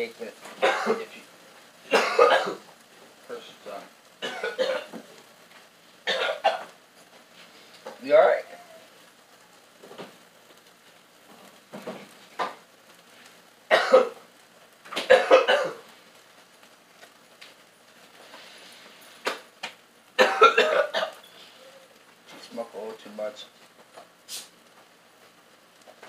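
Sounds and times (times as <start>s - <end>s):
man coughing: 0.6s - 1.2s, 1.9s - 2.6s, 4.2s - 5.0s, 13.7s - 14.2s, 15.1s - 15.8s, 20.2s - 21.2s.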